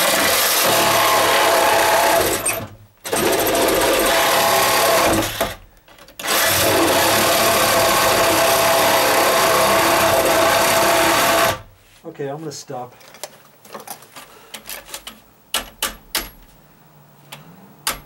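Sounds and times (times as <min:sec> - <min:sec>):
reciprocating saw cutting wood: 0:06.2 - 0:11.6.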